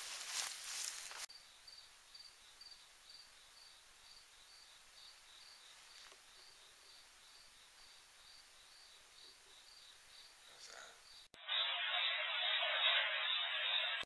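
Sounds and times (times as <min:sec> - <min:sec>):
cricket chirping: 0:00.8 - 0:11.3.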